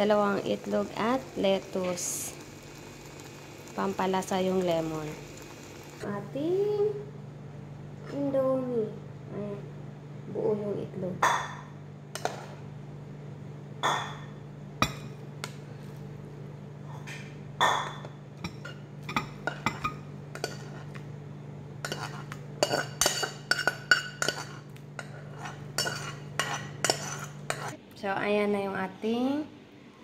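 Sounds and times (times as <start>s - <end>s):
steady low hum: 0.0s - 30.0s
utensil clinking against ceramic bowls: 21.8s - 27.8s.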